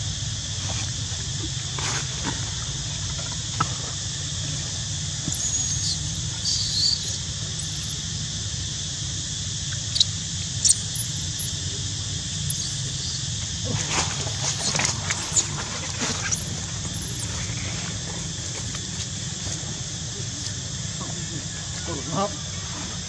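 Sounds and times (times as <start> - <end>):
steady high hiss: 5.1 - 18.1
baby monkey squeaking: 5.3 - 7.9, 9.8 - 11.5, 12.5 - 13.4, 14.3 - 15.6, 16.2 - 17.4
sharp clicks: 5.3 - 7.9, 9.7 - 11.5, 12.5 - 13.4.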